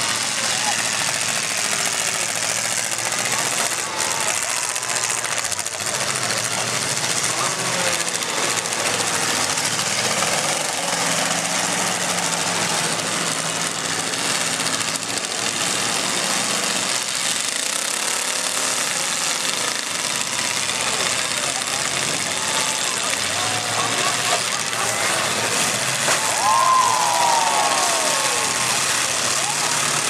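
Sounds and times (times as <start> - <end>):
many car engines revving: 0.0 - 30.0.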